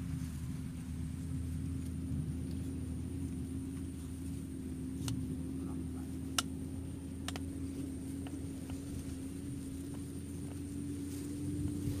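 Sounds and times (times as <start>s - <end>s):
low motor drone: 0.0s - 12.0s.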